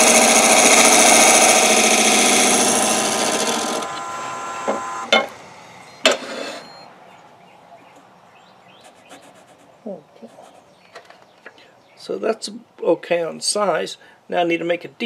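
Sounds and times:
turning tool cutting wood: 0.0s - 5.4s
lathe motor whining down: 0.0s - 6.0s.

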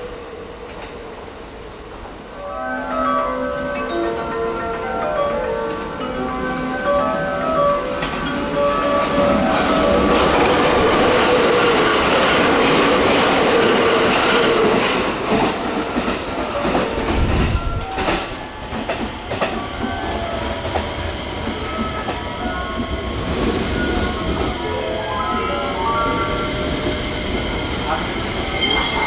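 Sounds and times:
train passing at speed: 0.0s - 29.0s.

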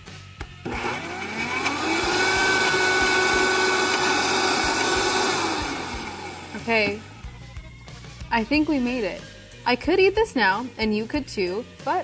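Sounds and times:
blender motor whining: 0.6s - 7.3s.

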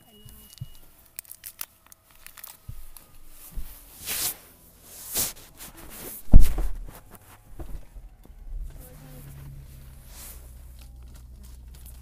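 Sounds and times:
rustling and handling noises: 0.1s - 12.0s
heavy low thump: 6.2s - 8.8s.

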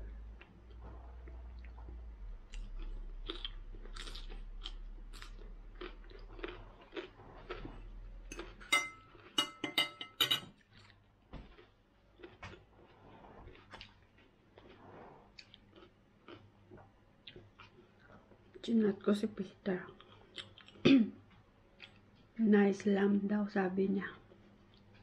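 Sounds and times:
chewing and crunching salad: 0.4s - 9.4s, 10.6s - 20.8s, 21.8s - 22.4s
metal fork clinking on plate: 8.3s - 10.5s.

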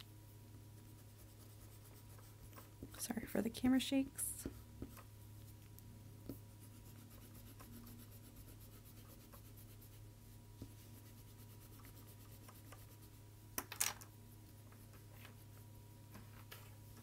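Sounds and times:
low steady hum: 0.0s - 17.0s
pencil eraser rubbing on paper: 0.8s - 2.7s, 6.4s - 13.2s.

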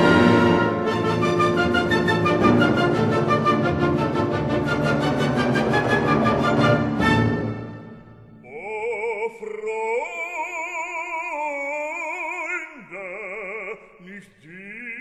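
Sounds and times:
operatic voice singing: 8.4s - 15.0s.

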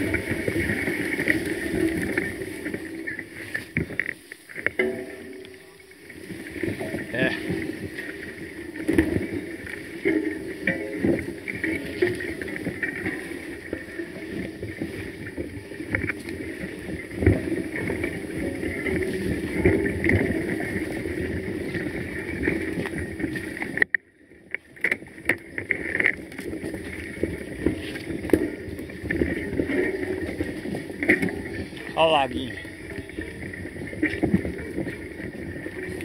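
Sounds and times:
knocks from trail bumps: 0.0s - 23.9s
bike rattling and rumbling: 0.0s - 36.0s.

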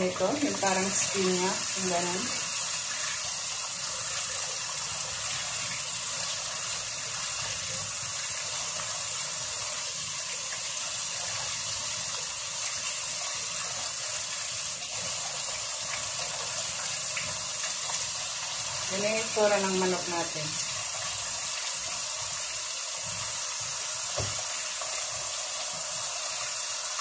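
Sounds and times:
tap running into a steel sink: 24.1s - 24.5s.

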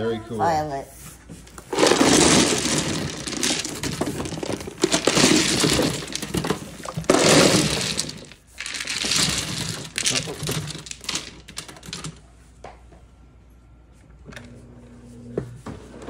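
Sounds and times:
mahjong tiles clattering: 1.6s - 12.2s.

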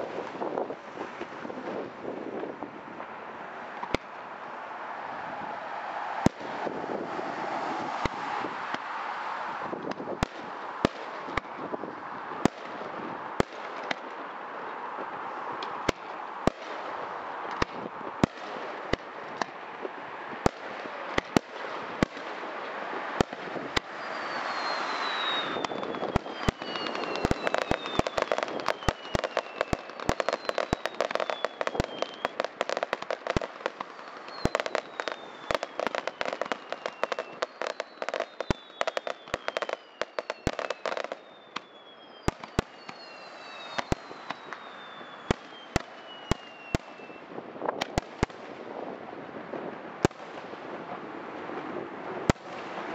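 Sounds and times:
fireworks bangs: 0.0s - 52.9s
fireworks crackling: 0.0s - 52.9s
fireworks whistles sliding down: 23.8s - 32.6s, 33.2s - 47.3s.

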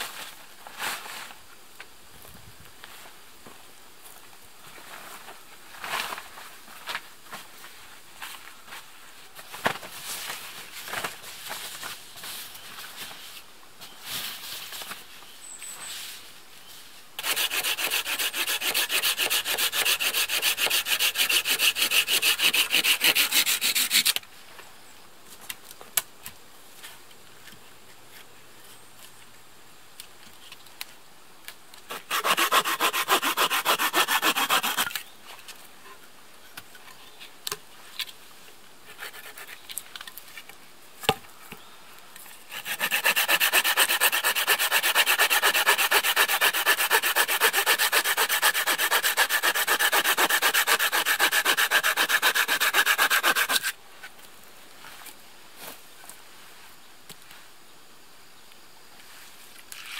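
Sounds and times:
hand saw cutting wood: 17.2s - 24.2s, 31.9s - 35.0s, 42.5s - 53.8s.

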